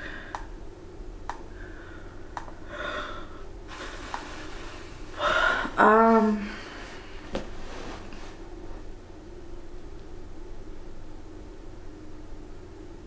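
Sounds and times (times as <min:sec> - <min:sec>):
woman gasping: 0:01.6 - 0:04.2, 0:05.1 - 0:07.2
woman sighing: 0:05.2 - 0:07.2.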